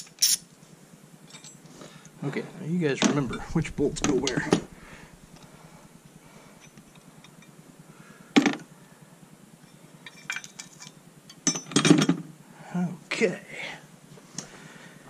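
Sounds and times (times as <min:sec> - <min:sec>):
metal bolts and tools clinking: 0:00.0 - 0:00.4, 0:01.2 - 0:01.7, 0:10.0 - 0:12.2.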